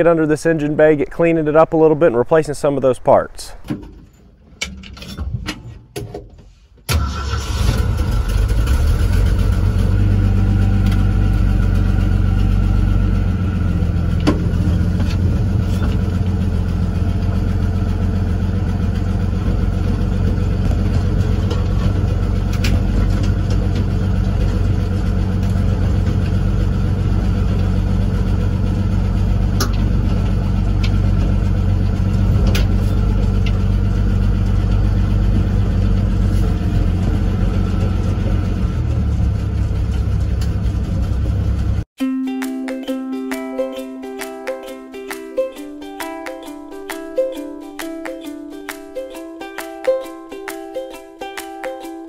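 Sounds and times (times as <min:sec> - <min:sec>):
truck engine running: 0:06.9 - 0:41.9.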